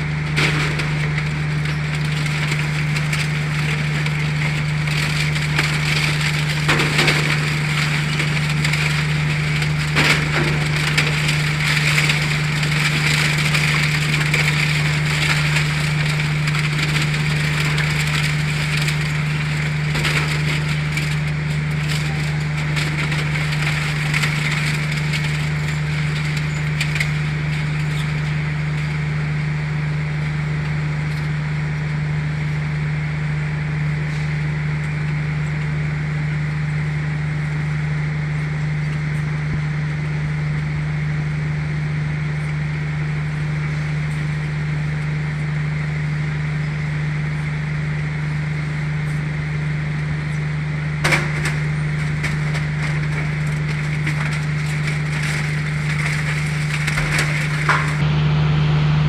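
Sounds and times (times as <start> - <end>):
shredder machine humming: 0.0 - 59.0
cutter discs crunching scrap: 51.0 - 58.0.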